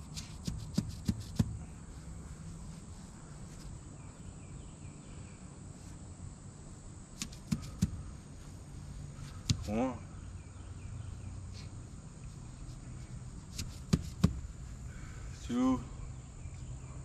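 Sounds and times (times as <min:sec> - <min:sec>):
insects chirring: 0:00.0 - 0:17.0
sharp knocks: 0:13.6 - 0:14.4.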